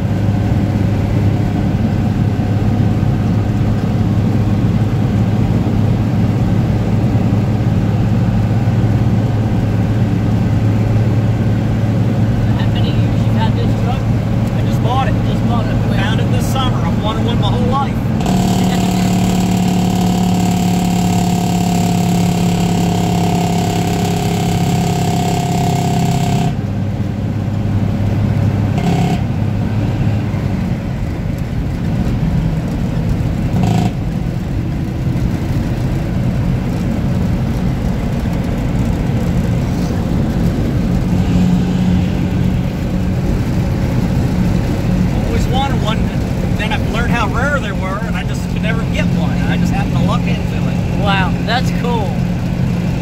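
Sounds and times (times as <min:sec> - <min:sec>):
diesel engine drone in cab: 0:00.0 - 0:53.0
higher whine: 0:12.1 - 0:26.7, 0:28.4 - 0:31.8.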